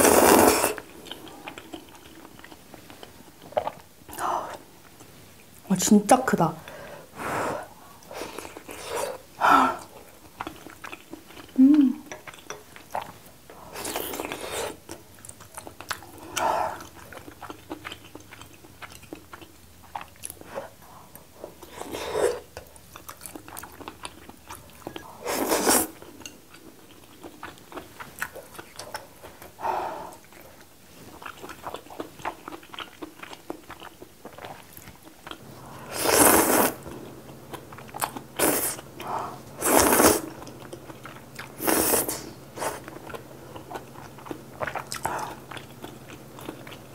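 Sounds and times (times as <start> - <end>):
slurping noodles: 0.0 - 0.8, 25.2 - 26.0, 35.8 - 36.8, 39.6 - 40.3, 41.6 - 42.8
wet chewing: 8.0 - 46.9.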